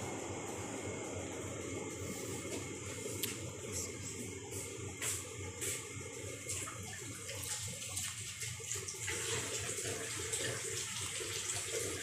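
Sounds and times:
water running from a tap: 0:06.4 - 0:12.0.

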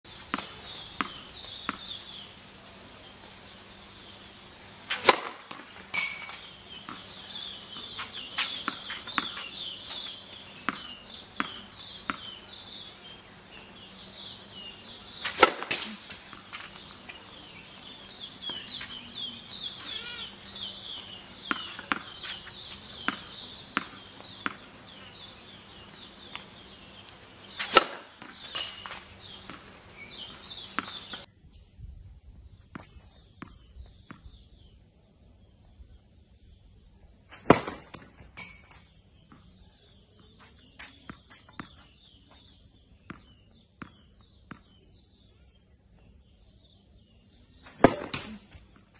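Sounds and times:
tennis ball bouncing: 0:00.1 - 0:02.2, 0:04.9 - 0:31.3, 0:32.7 - 0:34.3, 0:47.7 - 0:48.9
birds chirping: 0:00.1 - 0:31.7, 0:38.4 - 0:48.8
tennis racket hitting ball: 0:00.3 - 0:02.2, 0:04.9 - 0:31.3, 0:47.7 - 0:48.7.

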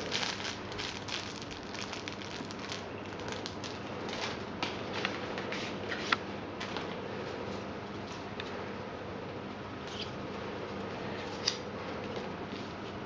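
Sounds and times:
plastic bag and paper rustling: 0:00.0 - 0:05.0.

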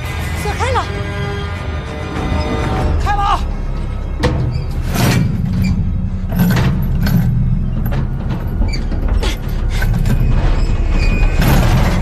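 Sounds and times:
deep rumble: 0:00.0 - 0:12.0
iron chains creaking and clanking: 0:03.8 - 0:12.0.

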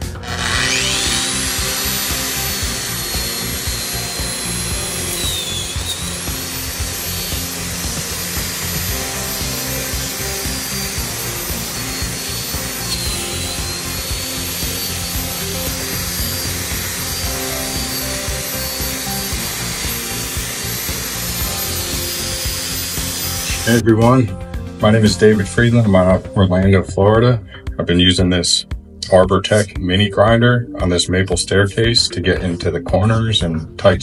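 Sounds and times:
grinder whining: 0:00.0 - 0:26.1.

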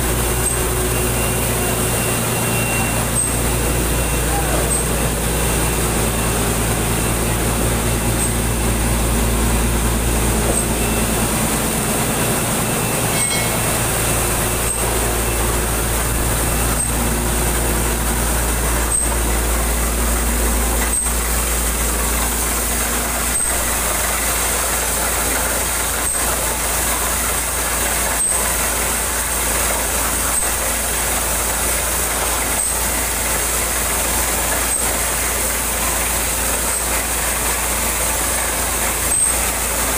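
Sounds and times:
drilling rig engine drone: 0:00.0 - 0:39.9.

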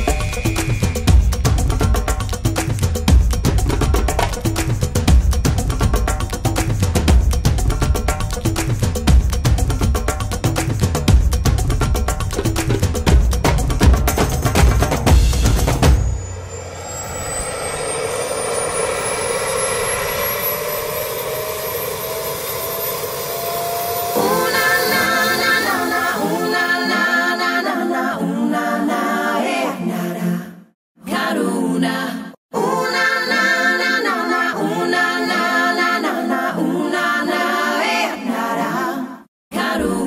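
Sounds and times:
helicopter turbine engines spooling up: 0:16.0 - 0:27.3
voices singing a cappella: 0:24.1 - 0:40.0.

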